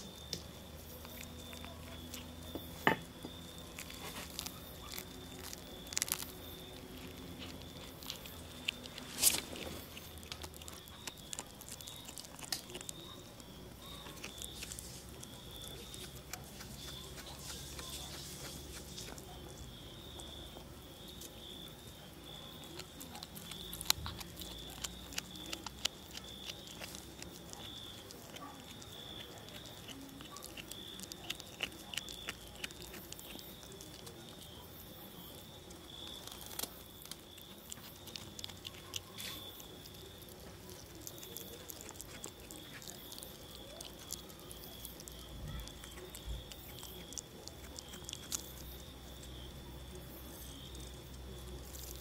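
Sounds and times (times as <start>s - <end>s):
high insect trill: 0.0s - 52.0s
kitten chewing and crunching: 0.0s - 52.0s.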